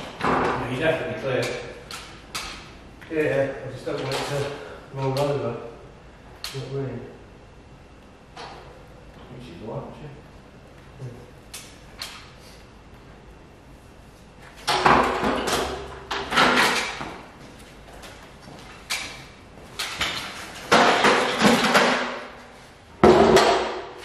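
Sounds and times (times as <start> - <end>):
sharp knocks: 23.0 - 24.0.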